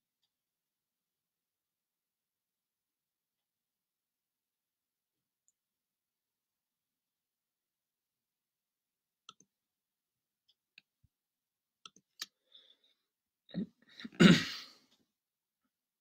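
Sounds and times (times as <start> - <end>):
man coughing: 14.0 - 14.8.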